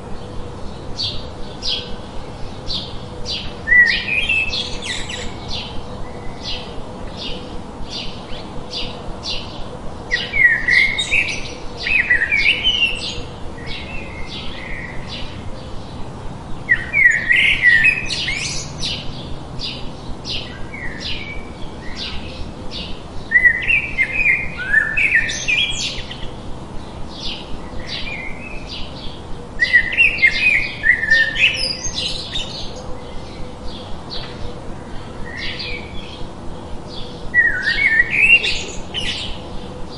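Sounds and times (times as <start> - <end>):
tumbling birdsong: 0.0 - 39.9
bird chirps: 16.7 - 26.4.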